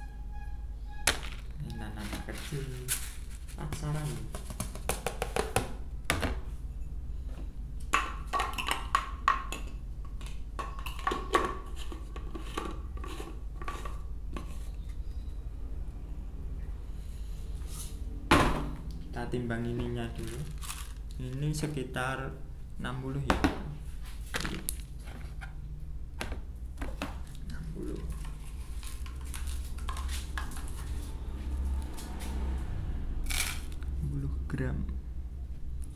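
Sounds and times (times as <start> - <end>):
low hum: 0.0 - 3.5, 25.6 - 35.9.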